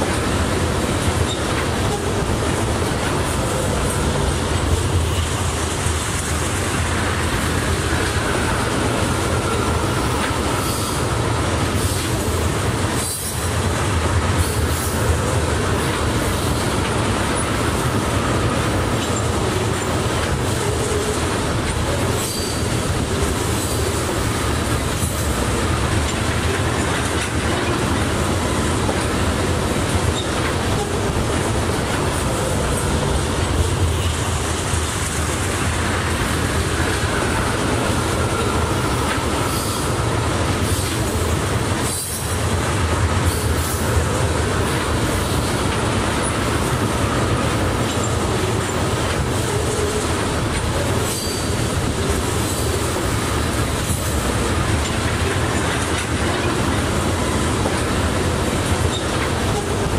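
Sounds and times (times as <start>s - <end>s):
train wheels rumbling on rails: 0.0s - 59.9s
thin wheel squeal: 22.2s - 22.6s, 51.1s - 51.5s.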